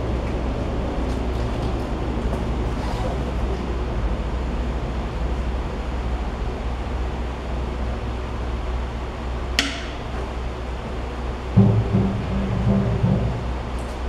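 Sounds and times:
steady low hum: 0.0s - 14.0s
short low-pitched sound: 11.6s - 13.9s.

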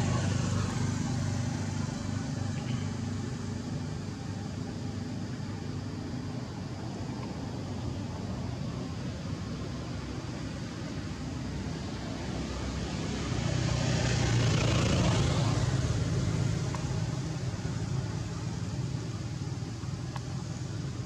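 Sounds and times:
vehicle passing by: 12.2s - 18.4s.

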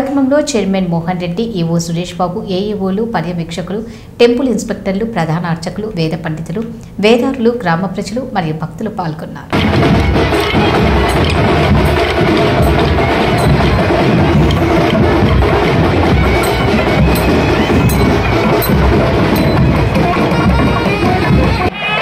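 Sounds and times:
barrel drums beaten with sticks: 9.5s - 21.7s.

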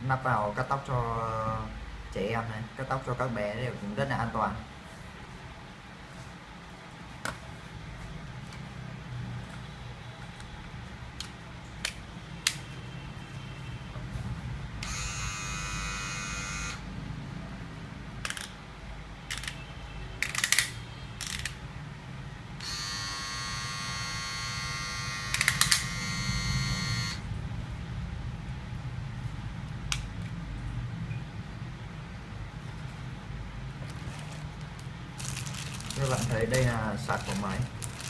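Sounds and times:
hair clipper buzzing: 14.8s - 16.8s, 22.6s - 27.2s.

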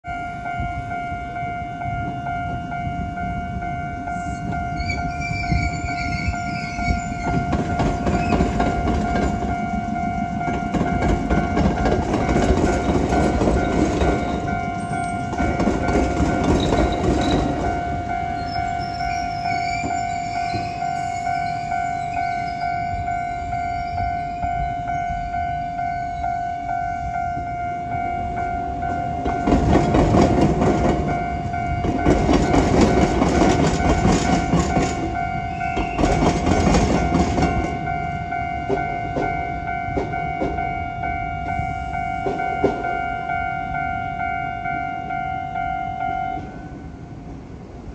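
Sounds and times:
level-crossing warning bell: 0.0s - 47.9s
train wheels clacking over rails: 5.5s - 22.3s, 28.8s - 40.8s, 41.5s - 43.1s.

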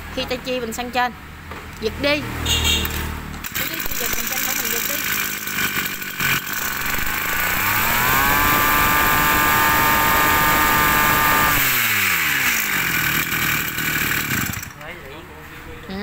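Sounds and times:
brush cutter engine revving: 3.4s - 14.8s.

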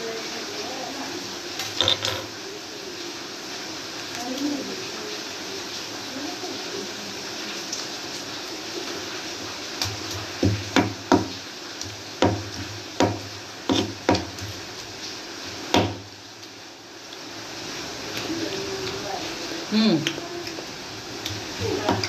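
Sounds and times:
stone pestle knocking in mortar: 13.0s - 14.3s.

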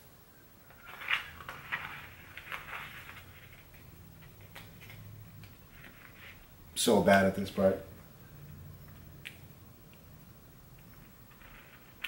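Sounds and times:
vinyl sheet crinkling and crackling: 0.6s - 6.6s, 10.6s - 12.0s.

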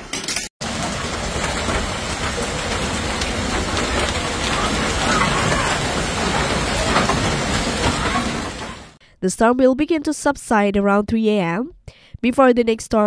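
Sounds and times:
heavy rain pounding down: 0.6s - 9.0s.

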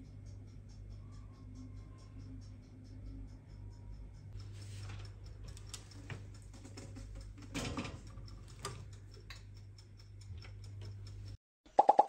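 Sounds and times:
metal pan clattering on oven rack: 7.5s - 8.1s.

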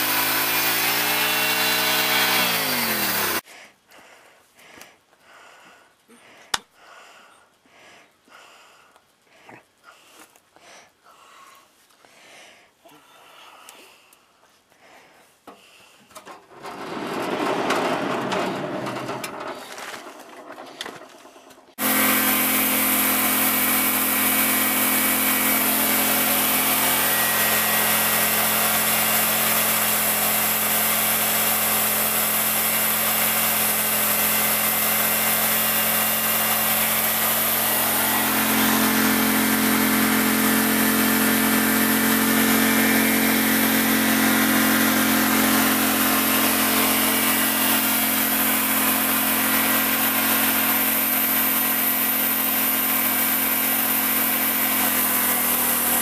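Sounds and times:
sawmill engine hum: 0.0s - 3.4s, 16.4s - 56.0s
saw blade cutting log: 0.0s - 3.5s, 16.4s - 56.0s.

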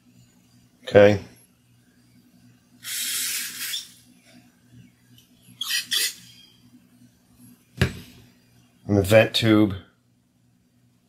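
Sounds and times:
aerosol spray hissing: 2.8s - 4.0s
short sharp aerosol spurts: 2.8s - 4.0s, 5.6s - 6.4s.

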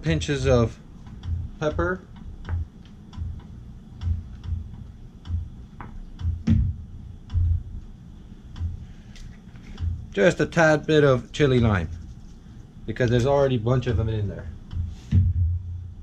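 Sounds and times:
soft low thumps: 0.0s - 8.9s, 9.7s - 10.2s, 13.7s - 16.0s.

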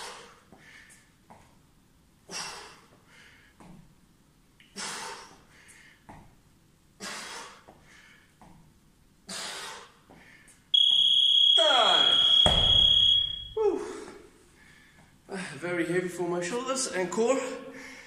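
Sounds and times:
man breathing hard: 0.0s - 1.2s, 2.2s - 3.7s, 4.6s - 6.1s, 7.0s - 8.4s, 9.3s - 10.7s, 13.6s - 15.6s, 17.7s - 18.0s.

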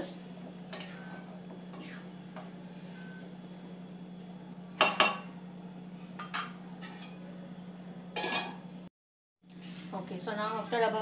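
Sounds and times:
utensils clanking on cookware: 6.2s - 7.2s, 8.2s - 8.6s.

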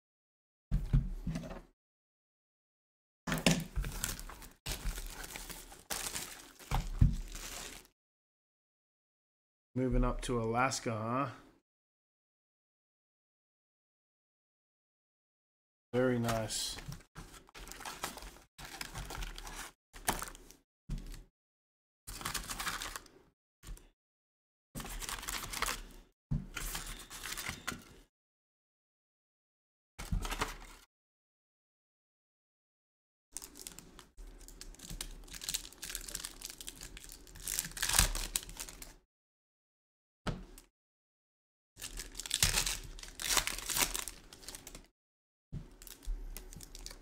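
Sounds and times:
foil wrapper crinkling and tearing: 3.8s - 7.9s, 22.1s - 23.1s, 33.4s - 38.9s, 41.8s - 44.9s, 45.8s - 47.0s.

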